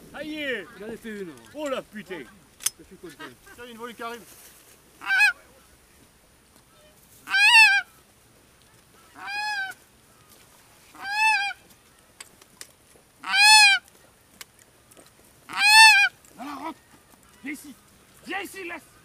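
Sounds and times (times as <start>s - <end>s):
goose call honks: 5.0s - 5.5s, 6.8s - 7.9s, 9.1s - 9.8s, 10.9s - 11.6s, 13.2s - 13.8s, 15.5s - 16.8s.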